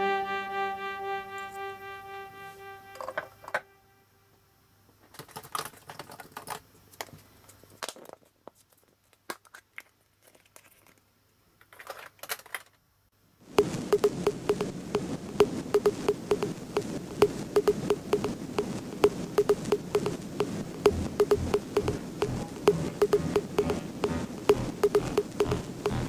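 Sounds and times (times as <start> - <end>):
electronic background music: 0.0 - 3.2, 17.6 - 18.4, 19.0 - 26.0
plastic toy eggs clicking: 14.0 - 14.7, 15.3 - 26.0.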